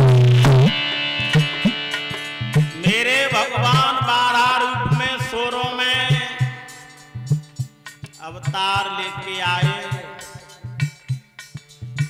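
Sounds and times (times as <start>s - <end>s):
hand drum strokes: 0.0s - 12.0s
harmonium holding notes: 0.0s - 12.0s.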